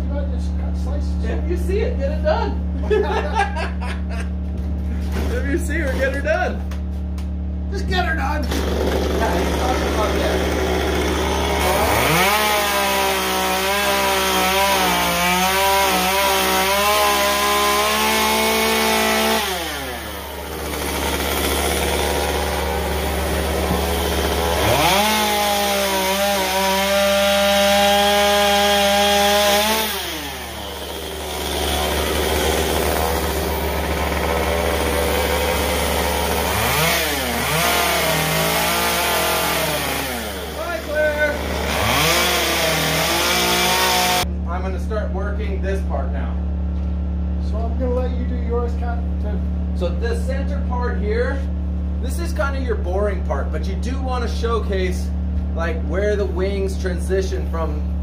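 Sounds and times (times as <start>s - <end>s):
chainsaw cutting wood: 2.8s - 7.6s, 8.2s - 44.3s.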